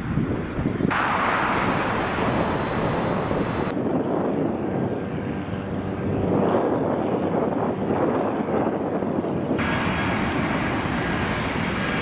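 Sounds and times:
jet engines with high whine: 0.0s - 12.0s
quieter lower jet engine: 0.0s - 12.0s.

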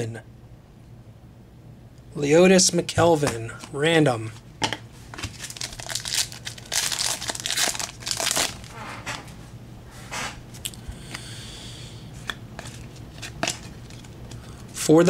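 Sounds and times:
wrapper crinkling: 5.2s - 8.8s.

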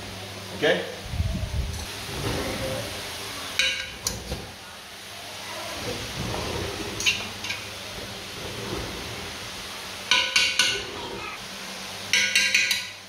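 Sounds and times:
spoon clinking against metal pot: 12.1s - 13.0s.

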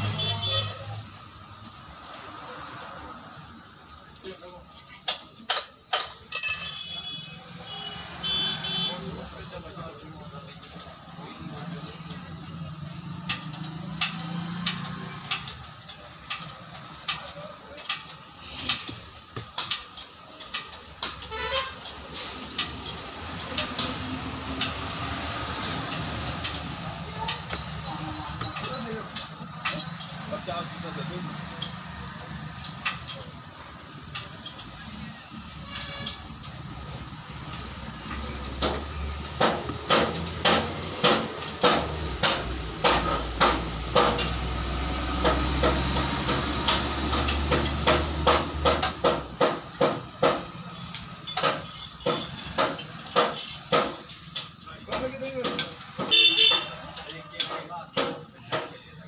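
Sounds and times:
brief squeak: 27.3s - 31.1s
sharp knocking: 38.6s - 44.4s, 45.2s - 50.5s.

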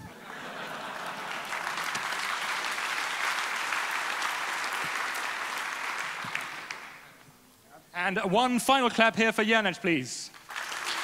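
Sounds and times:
audience applauding: 0.0s - 7.2s, 10.3s - 11.0s.

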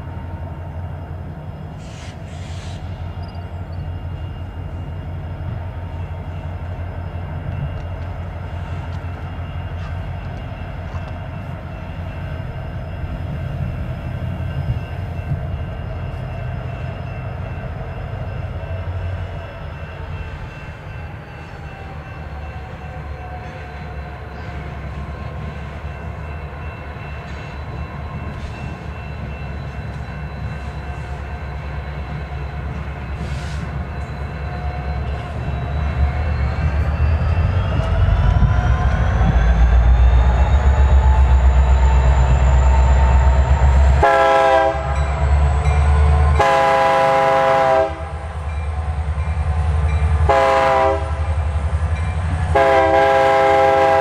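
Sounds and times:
freight train rumble: 0.0s - 54.0s.

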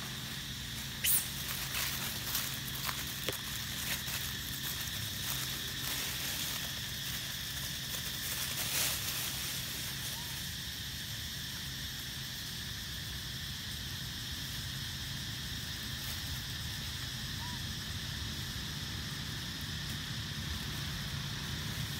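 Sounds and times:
dry leaves crackling: 0.0s - 11.2s, 18.1s - 21.9s
high-pitched forest hiss: 0.0s - 21.9s.

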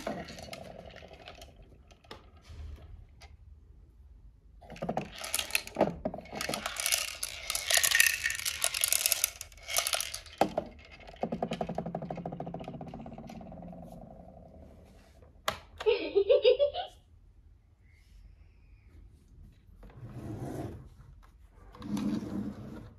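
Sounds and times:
plastic toy parts clattering: 0.0s - 2.6s, 4.6s - 13.7s.

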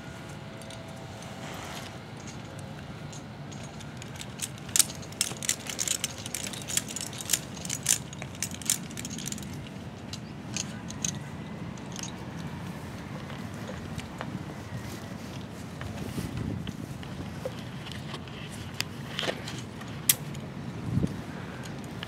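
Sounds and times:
metal climbing hardware clinking: 0.5s - 12.5s.

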